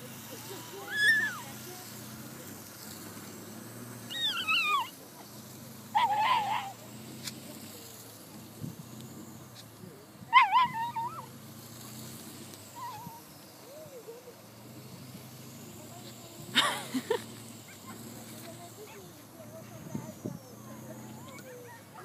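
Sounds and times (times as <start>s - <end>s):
dog whining and yelping: 0.4s - 1.5s, 4.1s - 4.9s, 5.9s - 6.8s, 10.3s - 11.3s, 12.7s - 13.3s, 21.1s - 22.0s.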